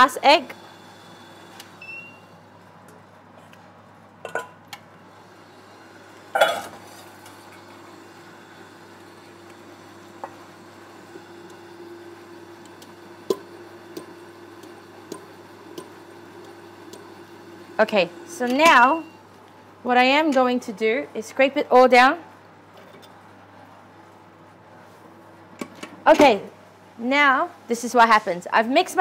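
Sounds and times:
stand mixer humming: 7.1s - 19.1s.

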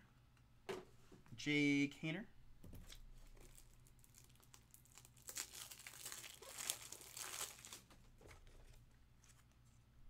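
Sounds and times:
cards and plastic crinkling: 2.9s - 9.6s.

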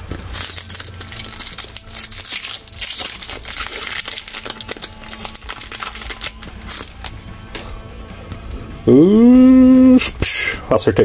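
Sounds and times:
foil wrapper crinkling: 0.0s - 7.7s.

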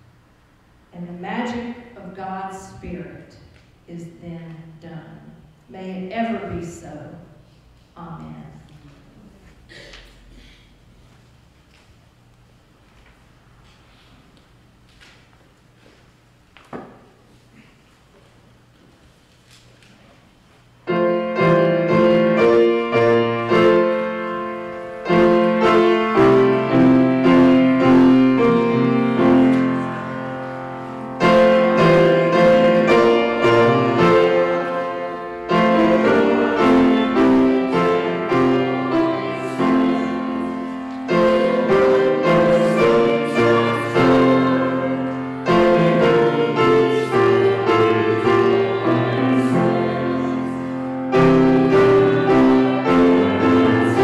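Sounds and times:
grand piano playing chords: 20.8s - 54.0s.

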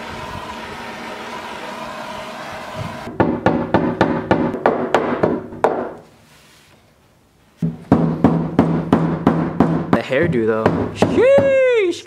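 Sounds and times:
hammer striking steel panel: 7.6s - 11.6s.

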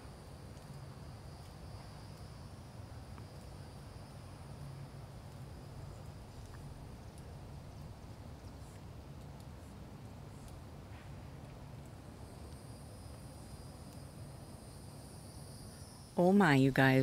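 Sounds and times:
low steady hum: 0.0s - 17.0s
faint ticks: 0.5s - 2.3s, 5.2s - 14.1s
high-pitched insect trill: 12.1s - 17.0s.

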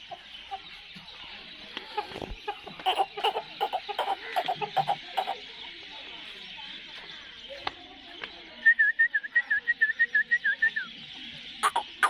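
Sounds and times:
rooster clucking: 1.8s - 5.4s, 11.6s - 12.0s.

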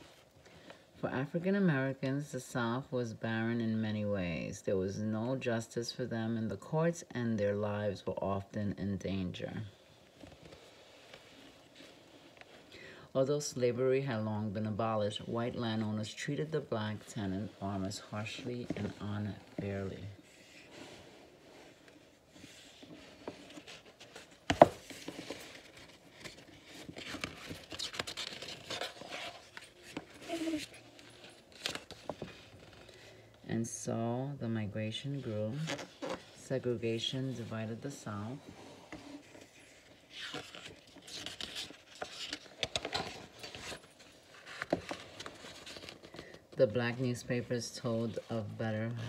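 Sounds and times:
book pages rustling: 14.1s - 33.4s, 35.1s - 49.0s.

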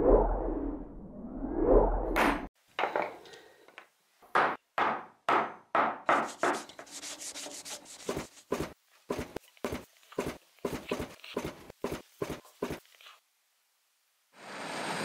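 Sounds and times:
cloth rubbing on wood: 6.3s - 13.2s.

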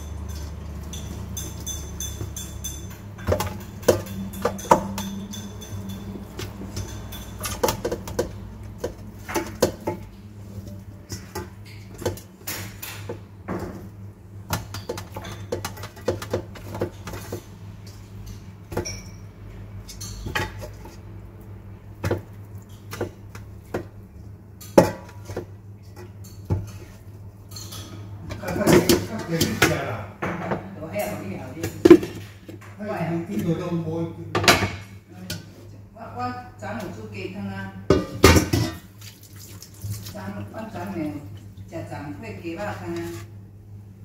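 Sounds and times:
meat knocking in a metal pot: 0.0s - 13.9s.

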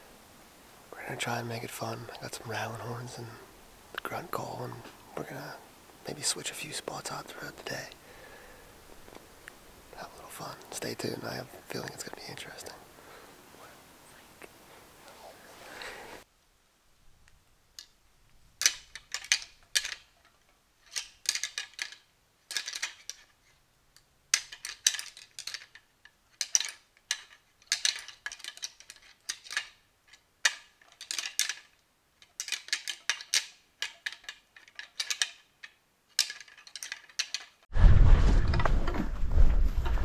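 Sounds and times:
antlers clacking together: 18.6s - 23.4s, 24.3s - 37.7s.

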